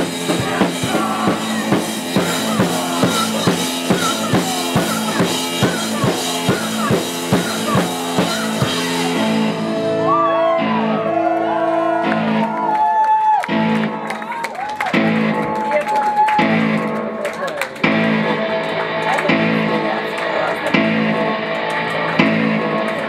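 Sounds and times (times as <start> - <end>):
driving drum beat: 0.0 - 9.7
distorted guitars: 0.0 - 12.7, 16.4 - 23.0
rock band playing: 0.0 - 23.0.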